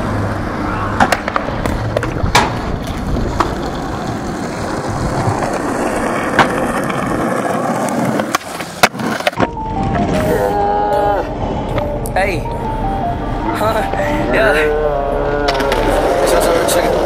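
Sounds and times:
skateboard wheels rolling on pavement: 0.0s - 17.0s
skateboard clacks: 1.0s - 10.3s, 15.3s - 17.0s.

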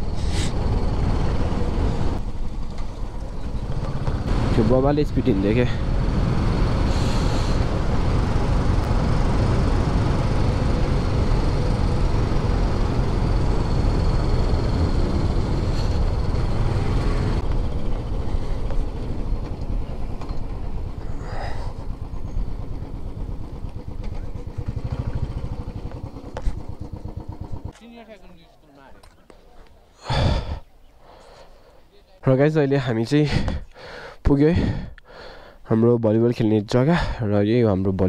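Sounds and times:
motorcycle engine running: 0.0s - 28.2s.

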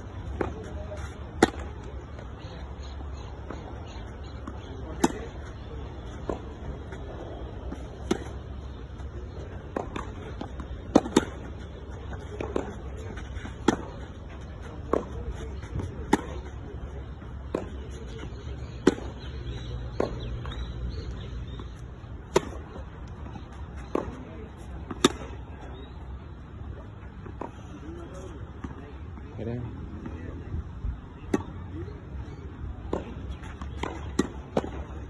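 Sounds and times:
tennis ball hit by racquet: 1.4s - 1.8s, 4.5s - 8.5s, 9.6s - 11.6s, 14.8s - 16.4s, 22.3s - 22.8s, 24.9s - 25.4s.

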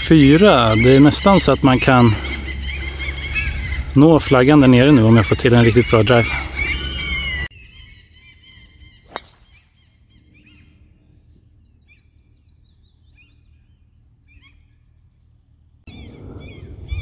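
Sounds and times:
birds chirping: 0.0s - 17.0s
golf driver striking ball: 9.1s - 9.5s.

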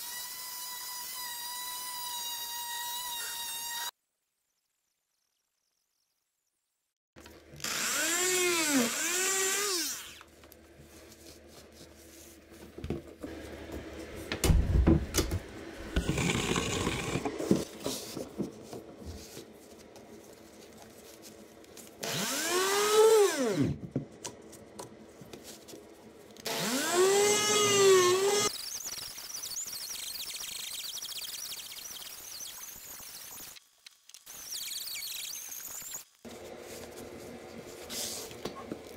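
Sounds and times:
oscillating multi-tool cutting wood: 0.0s - 4.0s, 7.6s - 10.3s, 22.0s - 23.7s, 26.4s - 33.6s.

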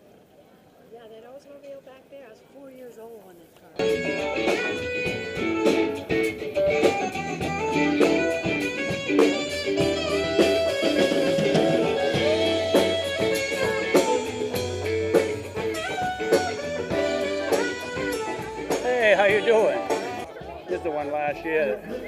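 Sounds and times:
electric guitar: 3.8s - 20.6s
bass and drums: 3.8s - 22.0s.

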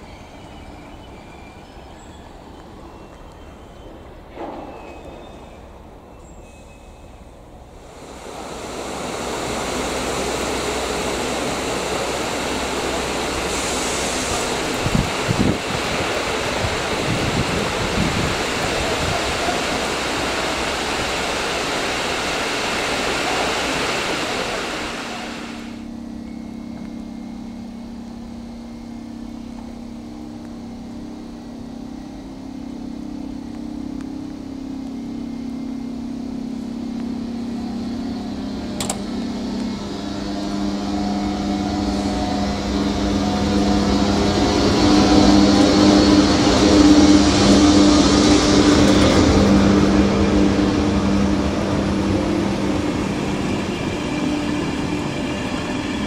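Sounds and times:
electric locomotive humming: 0.0s - 56.0s
loud rushing noise: 7.8s - 25.8s.

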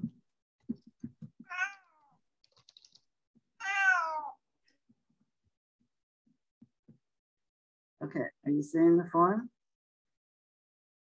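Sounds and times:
cat meowing: 1.4s - 2.2s, 3.6s - 4.4s.

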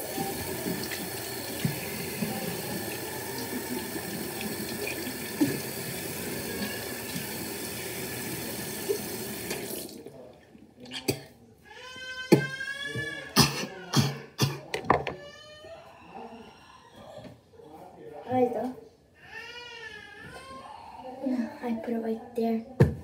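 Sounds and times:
mouth rinsing: 0.0s - 10.1s
tap water running into sink: 0.0s - 10.1s.

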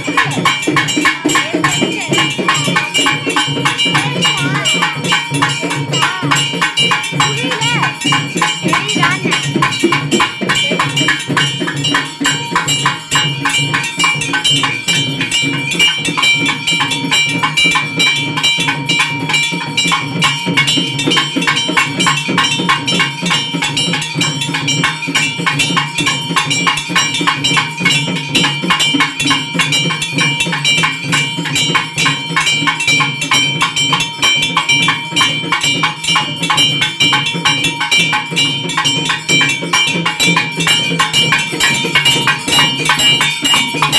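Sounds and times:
drums beaten in fast rhythm: 0.0s - 43.9s
ringing metallic tone: 0.0s - 43.9s.

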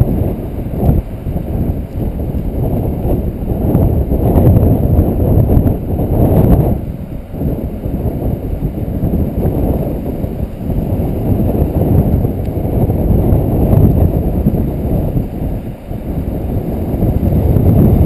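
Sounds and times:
wind buffeting microphone: 0.0s - 18.0s.

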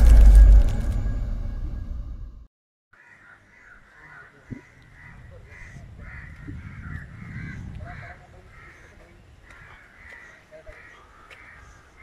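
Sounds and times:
crows cawing: 2.9s - 12.0s
wind on microphone: 4.5s - 9.8s.

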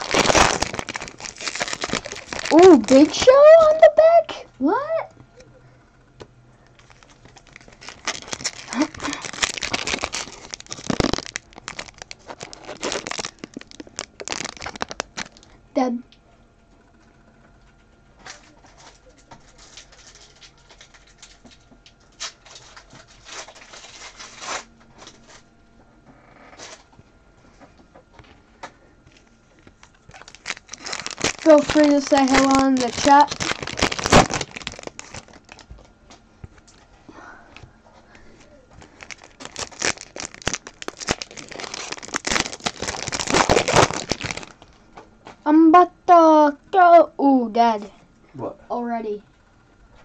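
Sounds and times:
foil wrappers crinkling and tearing: 0.0s - 4.0s, 6.7s - 15.6s, 18.2s - 25.4s, 29.1s - 36.9s, 38.4s - 44.8s
cards being shuffled: 29.6s - 35.7s.

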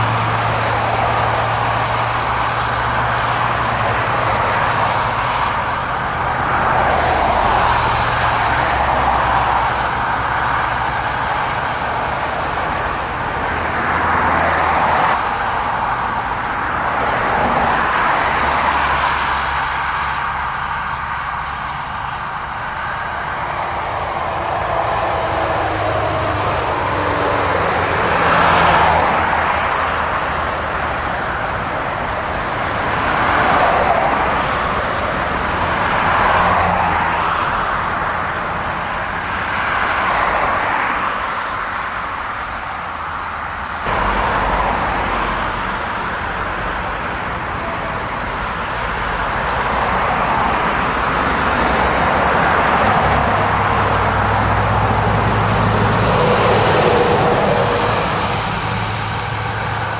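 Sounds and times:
vehicles passing on road: 0.0s - 59.9s
lorry engine approaching: 43.9s - 59.9s.

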